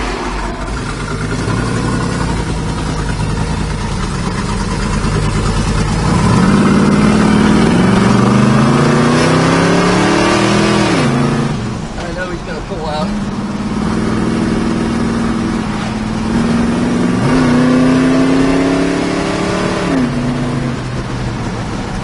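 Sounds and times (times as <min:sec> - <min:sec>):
engine rumbling and revving: 0:00.0 - 0:22.0.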